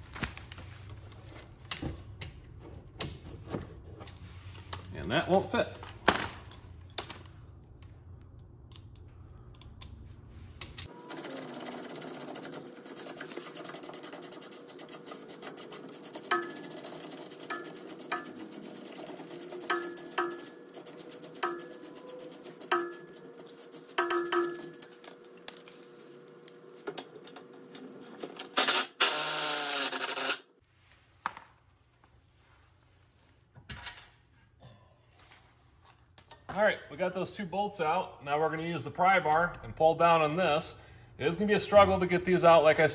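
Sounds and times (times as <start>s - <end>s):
hand ratchet clicking: 11.2s - 24.9s, 28.6s - 30.4s.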